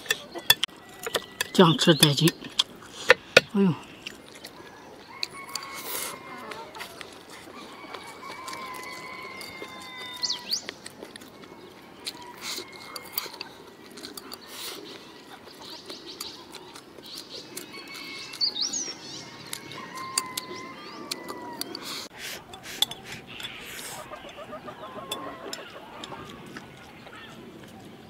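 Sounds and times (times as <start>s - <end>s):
chewing: 0.0s - 28.0s.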